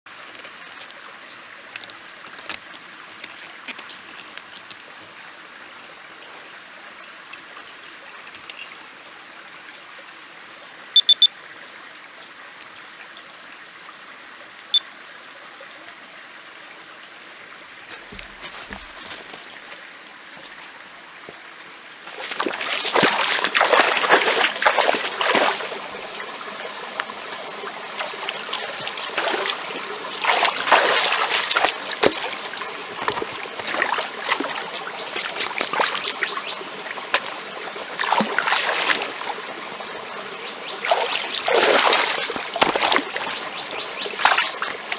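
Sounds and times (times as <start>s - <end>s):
trickle of running water: 0.1s - 44.9s
water splashing from wading: 22.0s - 44.9s.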